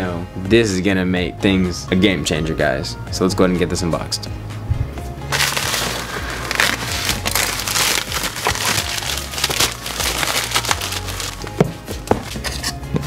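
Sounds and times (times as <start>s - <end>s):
plastic mailer crinkling: 5.3s - 11.6s.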